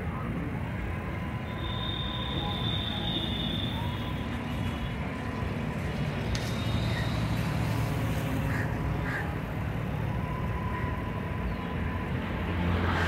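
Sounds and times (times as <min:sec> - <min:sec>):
traffic engines rumbling: 0:00.0 - 0:13.0
held tone: 0:01.4 - 0:04.3.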